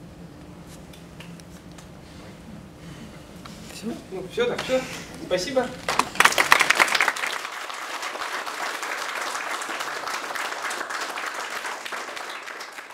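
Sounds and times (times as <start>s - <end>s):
audience applauding: 5.9s - 12.9s.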